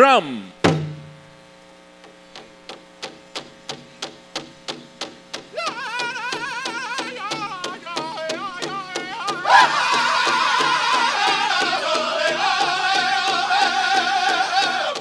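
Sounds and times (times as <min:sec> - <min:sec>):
powwow drum beat: 0:00.0 - 0:01.2, 0:05.4 - 0:15.0
faint electrical hum: 0:00.0 - 0:11.2.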